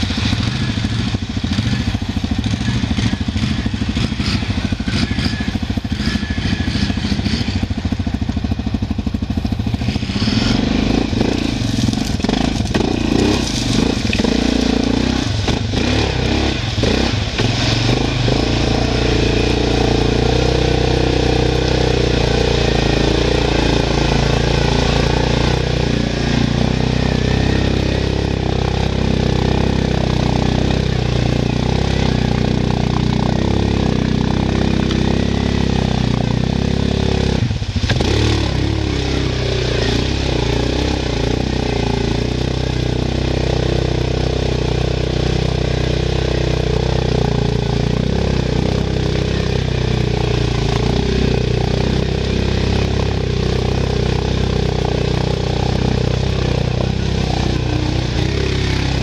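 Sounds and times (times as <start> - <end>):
quad engine running under load: 0.0 - 59.0
water washing: 11.1 - 20.0.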